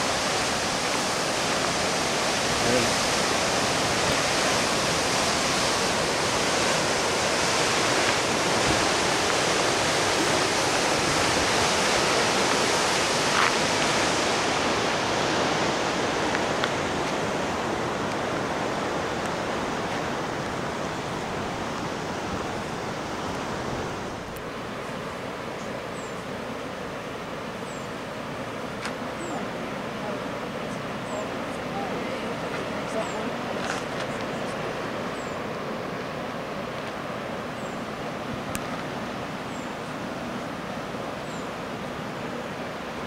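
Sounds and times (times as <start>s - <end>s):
surf breaking against rocks: 0.0s - 24.2s.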